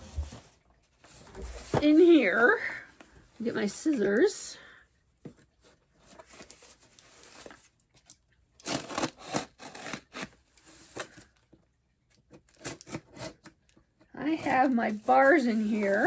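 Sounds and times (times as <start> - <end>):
packaging rustling and crinkling: 5.5 - 11.5.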